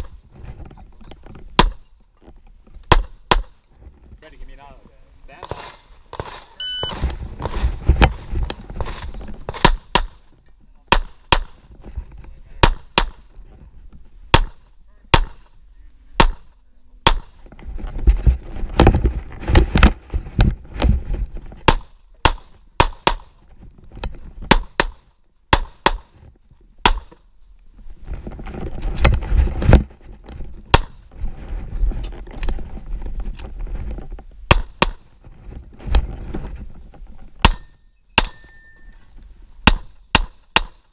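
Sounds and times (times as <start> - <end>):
shot timer beep: 6.6 - 7.0.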